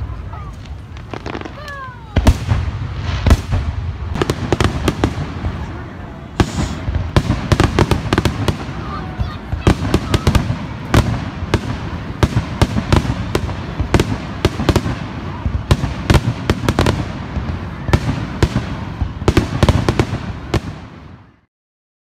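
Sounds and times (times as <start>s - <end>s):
firework shells bursting: 6.4s - 8.6s.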